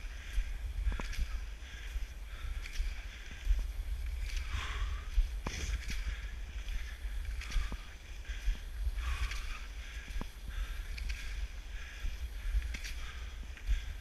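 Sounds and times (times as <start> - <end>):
skis swishing on snow: 0.0 - 14.0
steady low rumble: 0.0 - 14.0
ski poles clicking: 5.4 - 8.0, 9.0 - 11.5.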